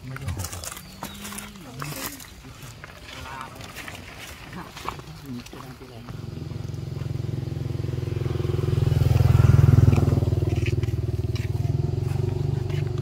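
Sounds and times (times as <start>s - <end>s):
vehicle engine passing: 6.1s - 13.0s.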